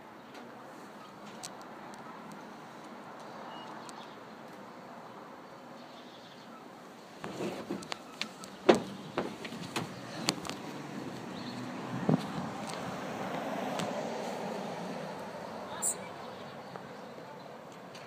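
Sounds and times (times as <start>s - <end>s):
sharp clicks and knocks: 7.2s - 10.6s.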